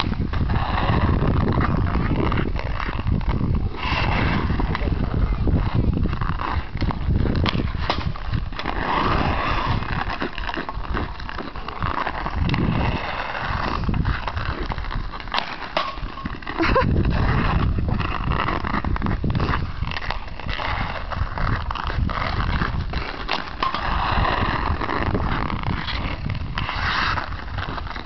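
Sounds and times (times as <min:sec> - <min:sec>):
skates scraping on ice: 0:00.0 - 0:28.0
hockey stick clacking on puck: 0:06.4 - 0:28.0.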